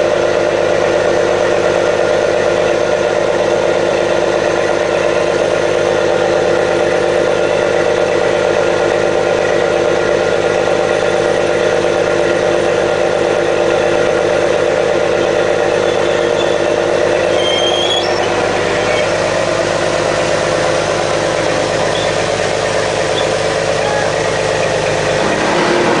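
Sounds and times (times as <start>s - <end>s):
boat engine drone: 0.0s - 26.0s
short high squeak: 15.7s - 19.4s, 21.8s - 22.3s, 23.1s - 24.2s.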